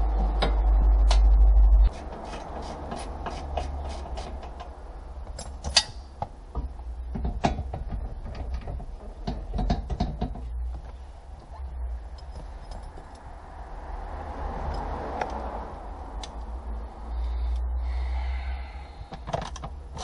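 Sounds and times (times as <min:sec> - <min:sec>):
steady low hum: 0:00.0 - 0:07.2
tools clicking and tapping on plastic: 0:07.1 - 0:10.5.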